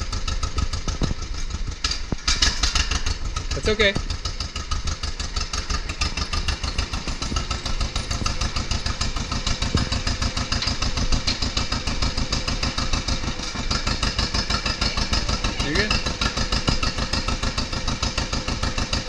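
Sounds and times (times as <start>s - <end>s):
tractor engine running: 0.0s - 19.0s.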